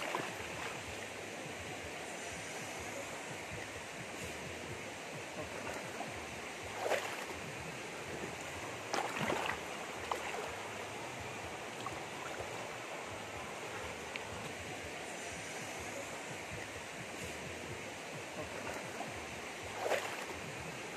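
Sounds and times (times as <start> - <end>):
splashes from wading: 0.0 - 1.1, 6.7 - 7.5, 8.8 - 10.8, 19.7 - 20.5
stream running over rocks: 0.0 - 3.8, 4.9 - 16.8.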